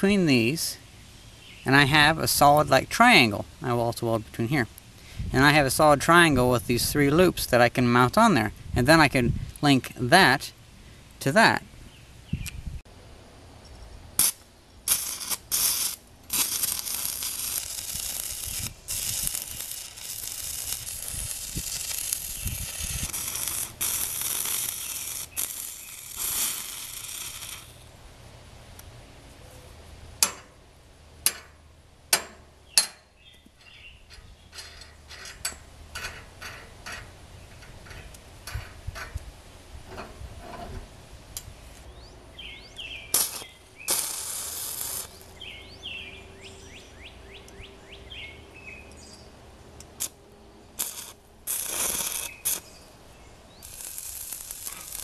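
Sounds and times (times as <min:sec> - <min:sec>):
welding arc crackling and hissing: 0:14.2 - 0:28.0, 0:43.0 - 0:45.5, 0:49.9 - 0:50.2, 0:50.8 - 0:52.8, 0:53.5 - 0:55.0
metal taps and clicks: 0:30.2 - 0:30.6, 0:31.2 - 0:39.3.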